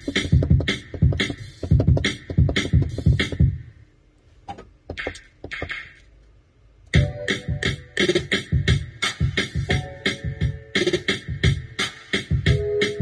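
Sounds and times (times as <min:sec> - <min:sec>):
finger-played drum beat: 0:00.0 - 0:03.6, 0:07.0 - 0:13.0.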